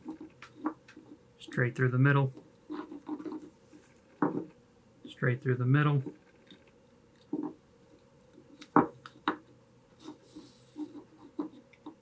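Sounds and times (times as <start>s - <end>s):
cord rubbing on wood: 0.0s - 4.6s, 5.9s - 8.9s, 10.0s - 12.0s.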